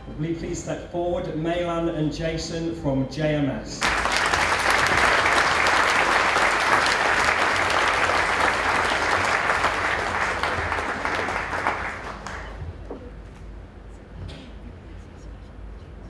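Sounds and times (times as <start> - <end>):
audience applauding: 3.8 - 12.7.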